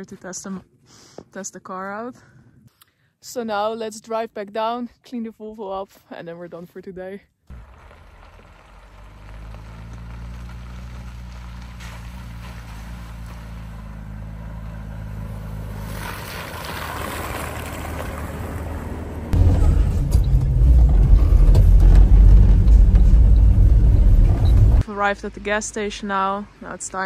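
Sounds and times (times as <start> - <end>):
truck engine droning: 7.5 - 27.0.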